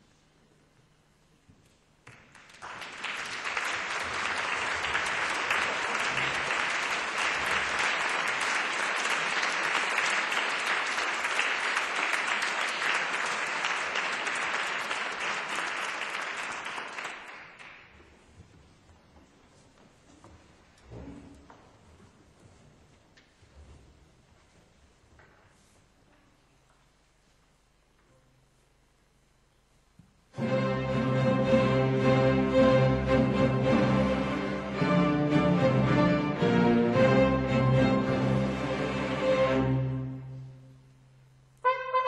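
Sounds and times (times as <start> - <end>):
audience applauding: 2.0 - 18.0.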